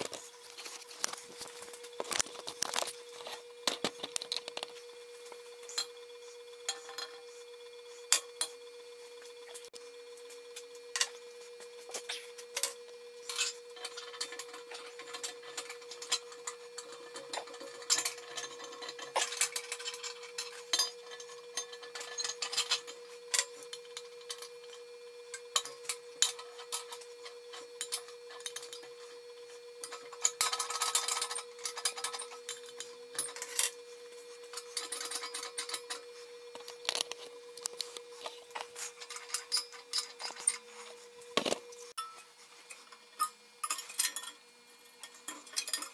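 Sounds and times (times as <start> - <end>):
steel parts clinking and scraping: 6.7 - 7.4, 11.9 - 29.2, 29.8 - 45.9.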